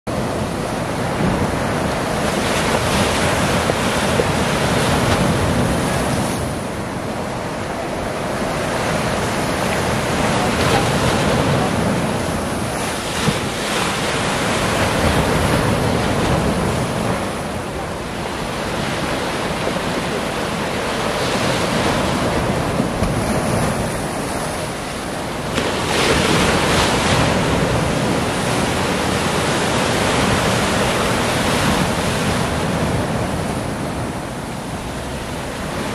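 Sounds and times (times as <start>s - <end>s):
surf breaking on rocky shore: 0.1s - 35.9s.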